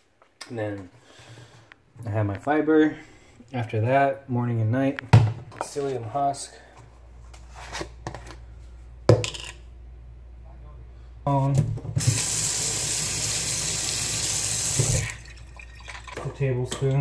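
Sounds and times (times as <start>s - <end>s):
tap water running: 12.0s - 16.4s.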